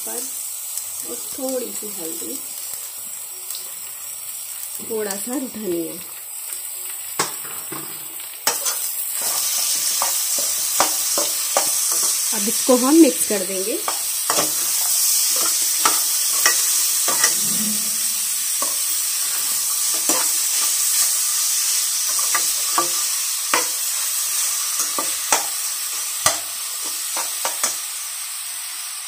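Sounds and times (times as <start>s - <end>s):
food sizzling in a pan: 0.0s - 29.0s
metal spatula scraping a pan: 7.2s - 27.8s.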